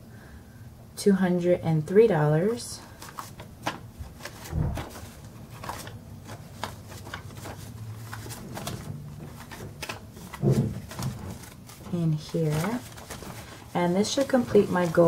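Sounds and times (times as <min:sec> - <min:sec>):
banknotes and envelope rustling: 0:02.9 - 0:15.0
paper clicks: 0:03.0 - 0:15.0.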